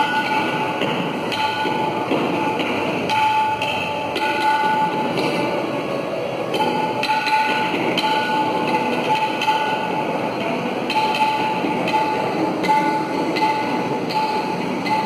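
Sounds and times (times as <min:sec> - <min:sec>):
tabla: 0:00.0 - 0:05.5.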